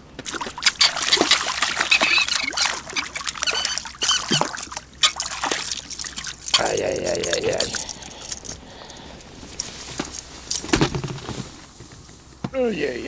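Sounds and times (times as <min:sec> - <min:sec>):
fish splashing in water: 0:00.2 - 0:09.1.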